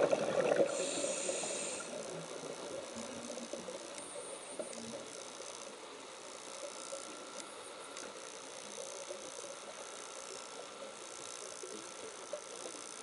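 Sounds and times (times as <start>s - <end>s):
rumble of bubbles: 0.0s - 3.8s
underwater crackling and clicking: 0.0s - 13.0s.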